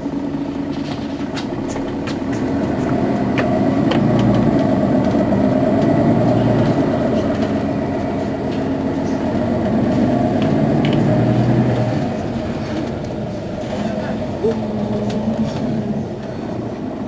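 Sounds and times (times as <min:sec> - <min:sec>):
bus engine idling: 0:00.0 - 0:17.0.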